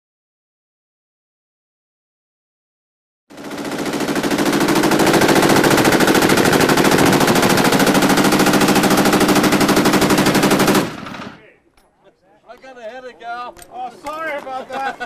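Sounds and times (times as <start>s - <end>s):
machine gun firing full-auto: 3.3s - 11.4s.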